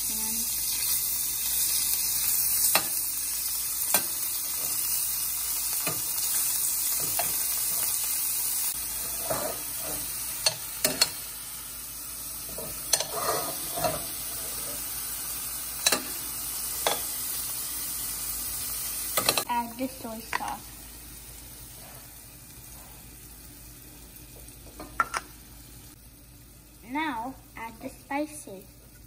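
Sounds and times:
chicken sizzling in hot oil: 0.0s - 29.0s
metal spoon scraping a pan: 9.0s - 11.2s, 12.5s - 14.9s.

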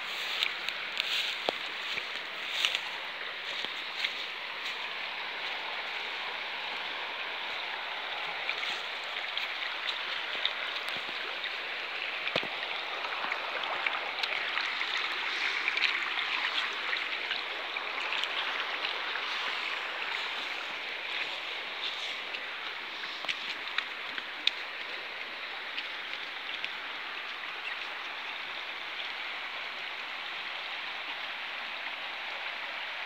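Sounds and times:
river water over stones: 0.0s - 33.0s.

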